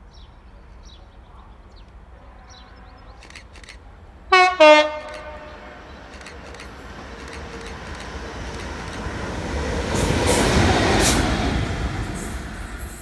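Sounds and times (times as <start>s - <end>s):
diesel locomotive passing: 0.3s - 13.0s
wheels clattering on rails: 4.9s - 13.0s.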